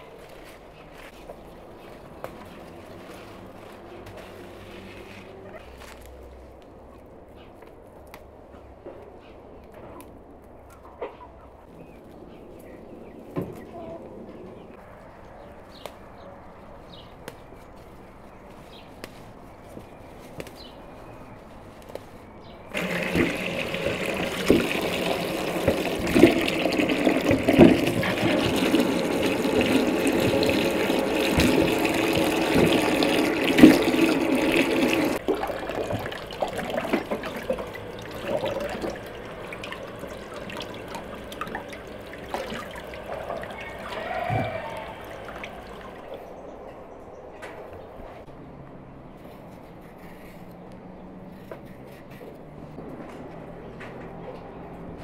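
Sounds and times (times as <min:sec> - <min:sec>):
water gushing into container: 0:22.7 - 0:46.2
water dribbling and splashing: 0:22.7 - 0:46.3.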